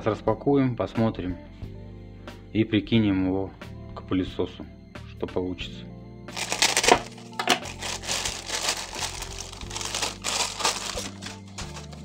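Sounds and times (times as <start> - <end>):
quiet background music: 0.0 - 12.0
plastic bag crinkling: 6.3 - 12.0.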